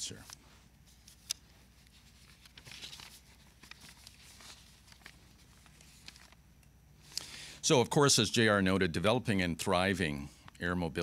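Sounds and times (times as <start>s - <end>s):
low steady hum: 0.0s - 11.0s
paper rustling: 0.2s - 6.4s.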